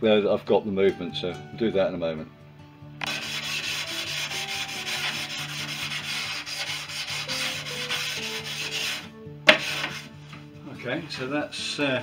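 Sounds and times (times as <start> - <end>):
sandpaper rasping on wood: 3.0 - 10.1.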